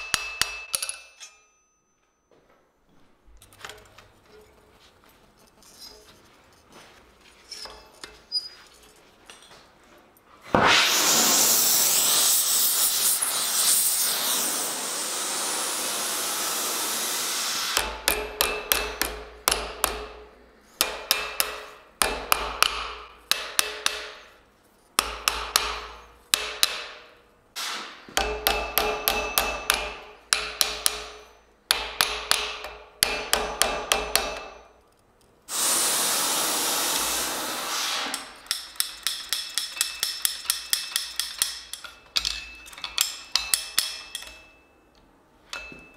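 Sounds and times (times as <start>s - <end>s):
hammer striking steel on anvil: 0.0s - 2.3s, 17.8s - 35.0s, 38.0s - 45.9s.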